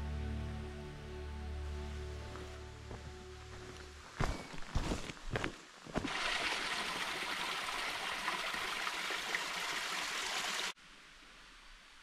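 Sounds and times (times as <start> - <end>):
stream rushing over cascades: 5.8 - 10.8.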